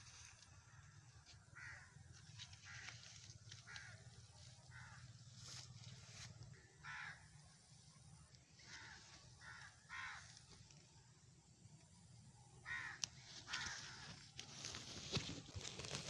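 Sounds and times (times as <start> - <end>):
crows cawing: 0.2 - 7.5, 8.6 - 10.8, 12.6 - 14.4.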